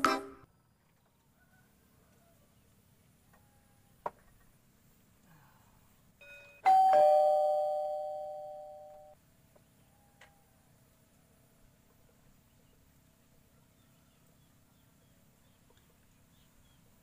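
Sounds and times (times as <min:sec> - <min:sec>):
two-note ding-dong chime: 0:06.2 - 0:09.2.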